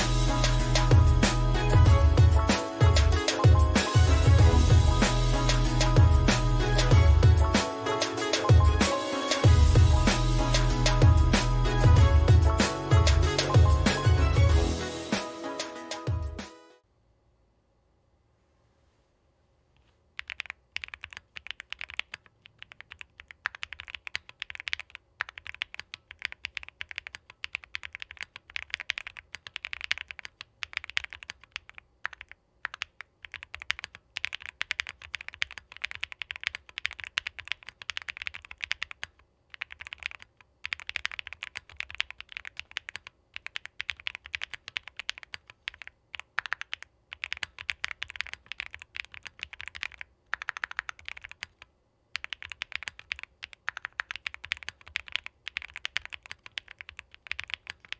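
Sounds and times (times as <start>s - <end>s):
typing on mechanical keyboard: 20.2s - 57.9s.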